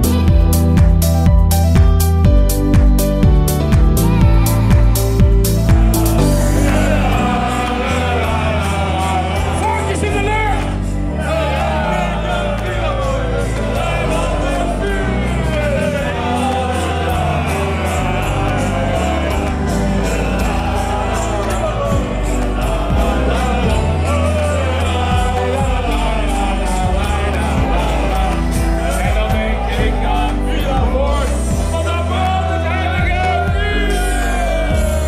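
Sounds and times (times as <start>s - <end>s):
loud music with steady beat: 0.0s - 35.0s
crowd singing along: 4.3s - 35.0s.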